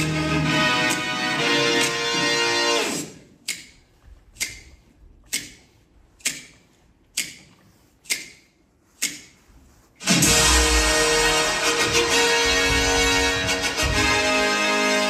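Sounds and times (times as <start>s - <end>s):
dance music: 0.0s - 3.2s, 10.0s - 15.0s.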